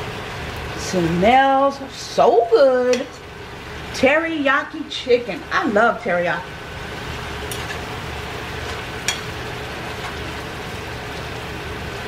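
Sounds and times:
chicken sizzling in a frying pan: 0.0 - 12.0
fork tapping a pan: 2.9 - 3.2, 9.0 - 9.3.

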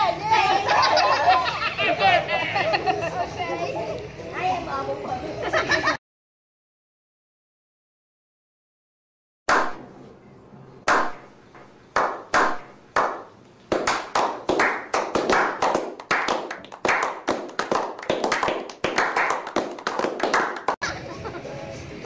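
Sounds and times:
men clapping hands: 10.9 - 11.2, 12.0 - 20.8.

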